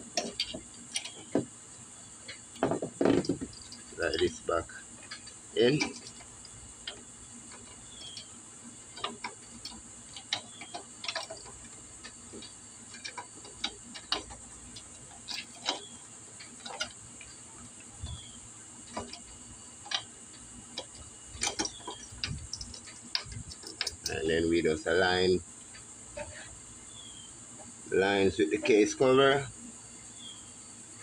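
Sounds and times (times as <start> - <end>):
faint steady high hiss: 0.0 - 31.0
light metallic clicks and taps: 18.9 - 24.2.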